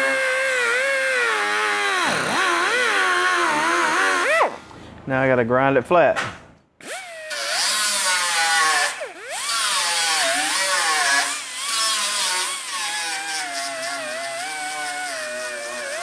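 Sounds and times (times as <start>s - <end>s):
power grinder grinding metal: 0.0s - 4.6s, 6.8s - 16.0s.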